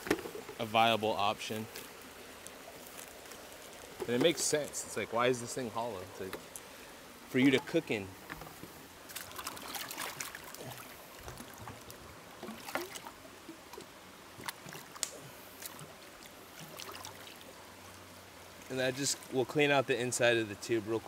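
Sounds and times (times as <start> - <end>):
stream flowing: 0.0 - 21.0
water sloshing in bamboo tube: 7.4 - 17.7.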